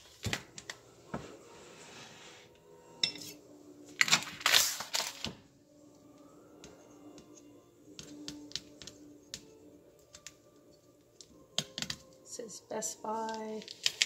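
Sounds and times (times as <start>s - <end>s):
plastic crinkling: 4.0s - 5.3s, 13.3s - 14.0s.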